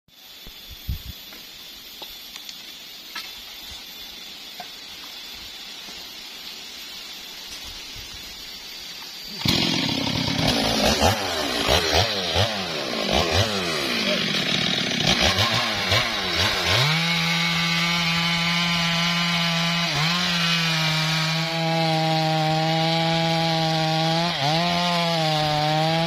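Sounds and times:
faint hiss: 0.1 - 9.4
chainsaw revving: 9.3 - 26.0.

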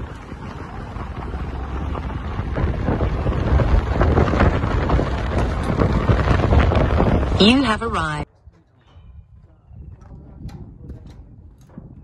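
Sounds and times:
tyres crunching on gravel: 0.0 - 7.4
wind rushing past microphone: 0.0 - 7.9, 8.9 - 12.0.

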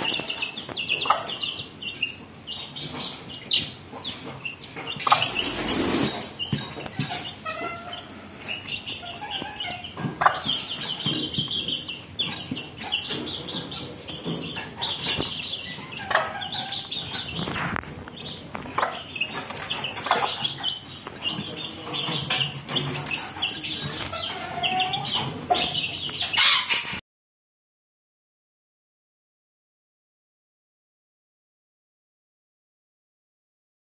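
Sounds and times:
chicks peeping: 0.0 - 27.0
hen clucking: 0.0 - 27.0.

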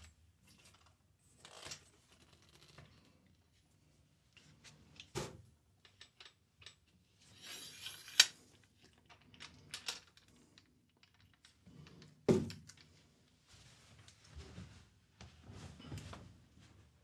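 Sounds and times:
scraping: 7.2 - 8.3.

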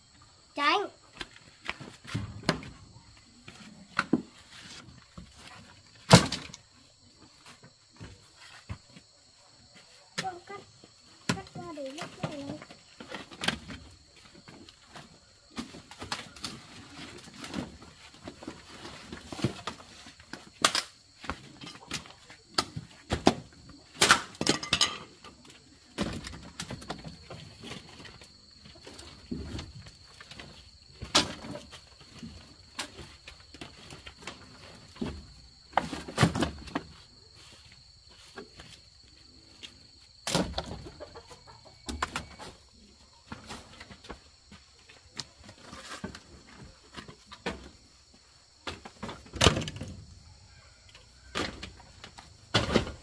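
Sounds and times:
wooden sticks clattering: 24.2 - 29.6.

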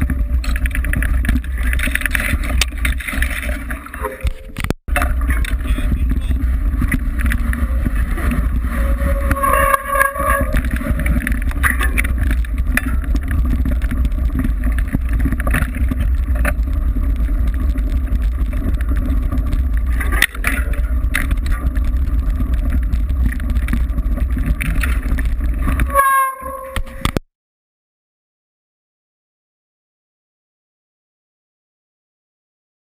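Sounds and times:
mountain bike rattling and knocking: 0.0 - 27.2
wind buffeting microphone: 4.5 - 26.0.

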